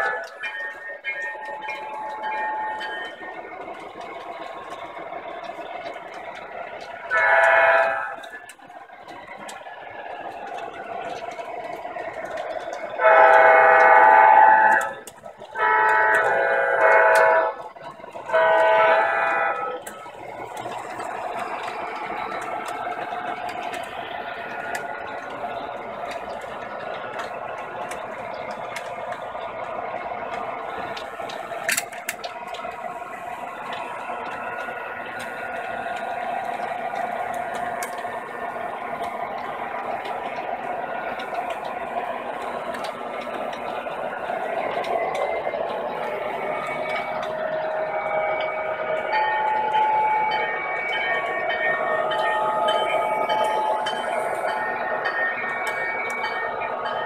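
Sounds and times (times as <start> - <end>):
model train track clacks: 0.0 - 57.0
model train wheels whirring: 0.0 - 57.0
steady high tones: 0.0 - 57.0.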